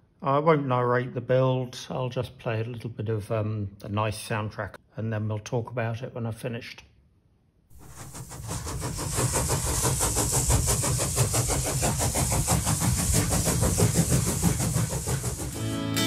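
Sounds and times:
fast rhythmic background music: 13.2 - 16.0.

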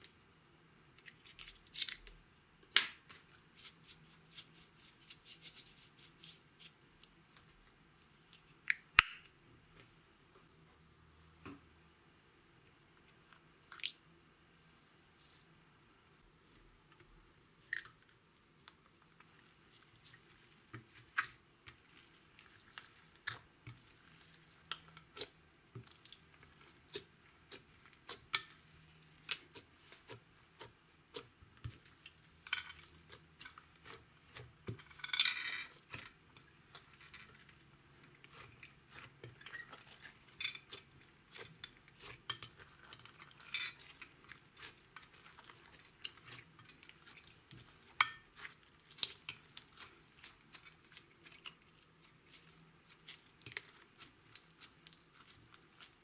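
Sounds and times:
slime squelch: 17.2 - 56.0.

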